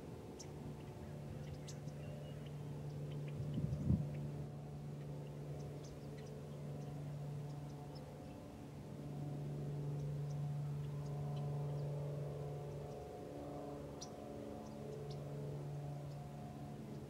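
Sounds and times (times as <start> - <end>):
low mechanical hum: 0.0 - 17.0
small birds chirping: 0.3 - 8.4, 13.9 - 16.3.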